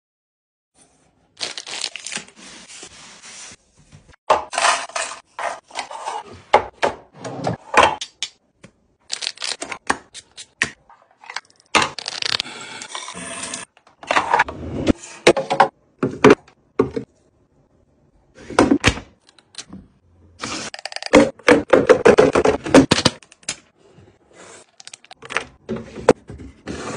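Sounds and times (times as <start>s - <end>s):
plastic packaging crinkling: 1.4s - 2.3s, 9.1s - 9.6s.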